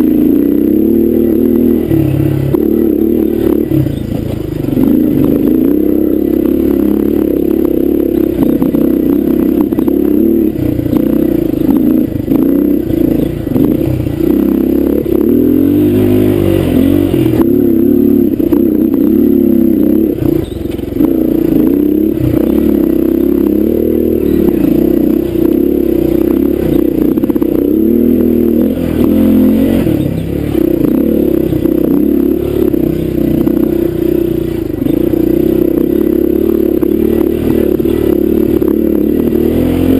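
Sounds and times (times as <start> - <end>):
dirt bike engine revving: 0.0 - 39.9
bike knocking and rattling: 20.2 - 23.4, 29.9 - 38.8.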